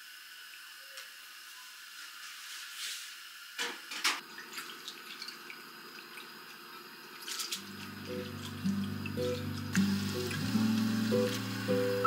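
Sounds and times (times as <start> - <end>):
small wet drips: 4.3 - 11.4.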